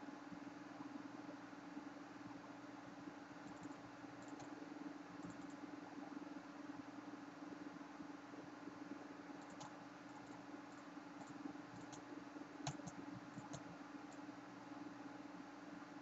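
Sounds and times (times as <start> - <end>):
steady low hum: 0.0 - 16.0
faint computer mouse clicks: 3.5 - 4.5, 5.2 - 5.6, 9.4 - 10.4, 12.6 - 14.2.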